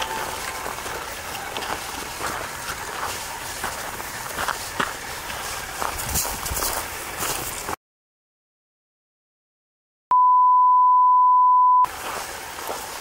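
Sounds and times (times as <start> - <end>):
outdoor crackles: 0.0 - 7.8
electronic test tone beep: 10.1 - 11.9.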